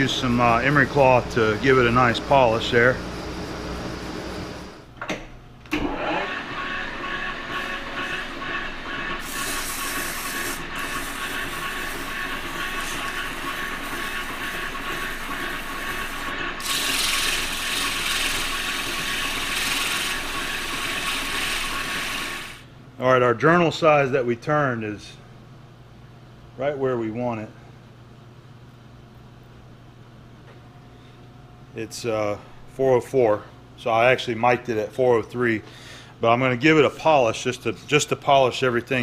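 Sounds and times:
metal lathe running: 0:00.0 - 0:04.8, 0:05.9 - 0:22.6
file scraping spinning metal: 0:07.4 - 0:22.6.

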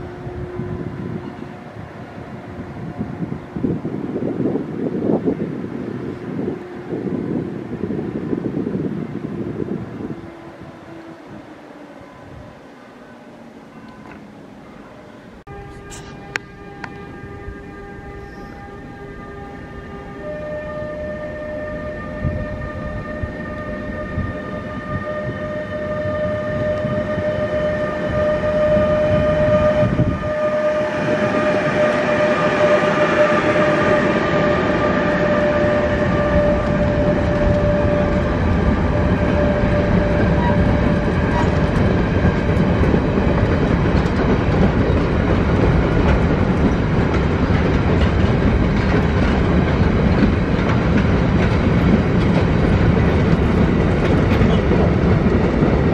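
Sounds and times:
locomotive whine: 0:00.0 - 0:55.9
train wheels clacking over rail joints: 0:39.8 - 0:55.9.

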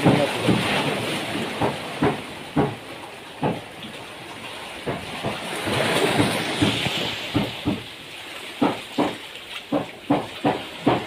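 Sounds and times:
sea water washing against rocks: 0:00.0 - 0:11.0
soft knocks: 0:04.8 - 0:07.9, 0:08.6 - 0:11.0.

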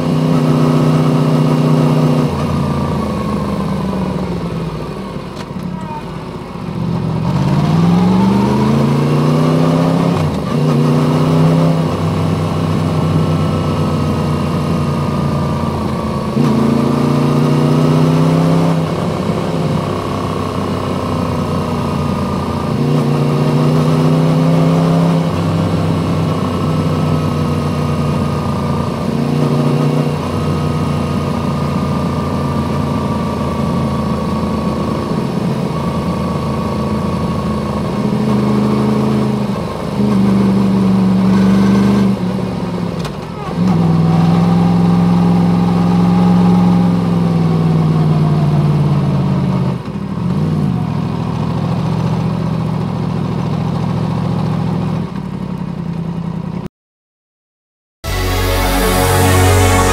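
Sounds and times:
motorcycle engine revving: 0:06.0 - 0:42.6, 0:58.1 - 0:59.9.

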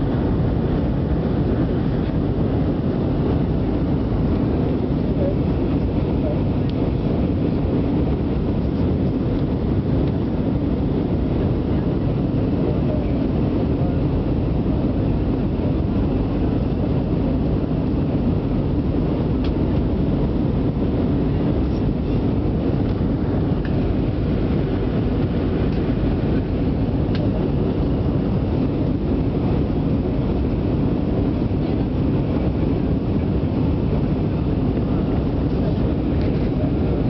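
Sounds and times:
airflow noise: 0:00.0 - 0:37.0
airliner cabin engine rumble: 0:00.0 - 0:37.0.

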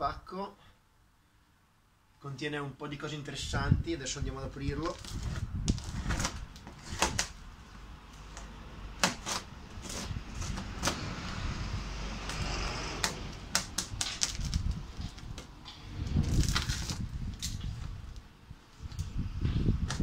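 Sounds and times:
tape tearing: 0:04.7 - 0:07.5, 0:08.1 - 0:11.5, 0:12.1 - 0:18.3
tool tapping and scraping cardboard: 0:08.3 - 0:11.1.

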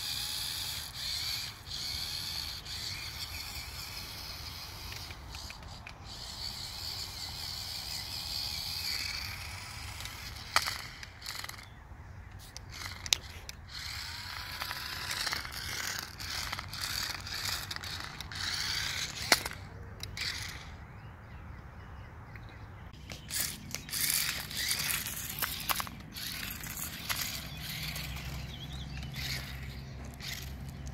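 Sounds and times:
toy car motors whirring: 0:00.0 - 0:20.9, 0:23.0 - 0:30.9
sharp clicks: 0:00.4 - 0:11.7, 0:12.3 - 0:20.8, 0:22.3 - 0:30.9.

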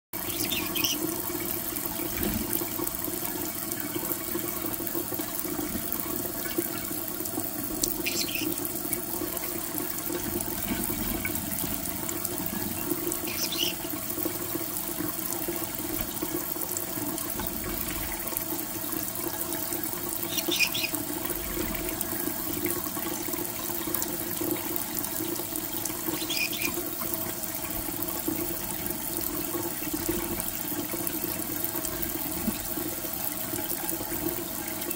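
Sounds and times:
tap water running into dish: 0:00.2 - 0:34.9.

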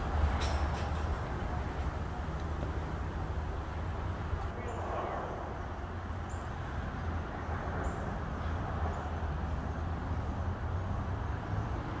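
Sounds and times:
low street rumble: 0:00.0 - 0:12.0.

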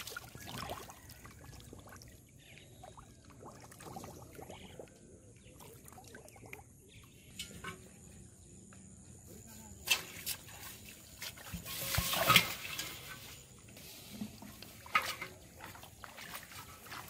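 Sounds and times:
fish splashing in shallow water: 0:00.0 - 0:07.0, 0:14.4 - 0:17.0.

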